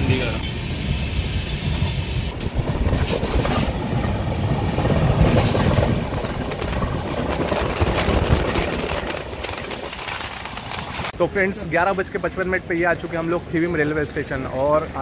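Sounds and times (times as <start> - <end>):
train rumbling on rails: 0.0 - 15.0
wheels clacking: 1.7 - 11.1.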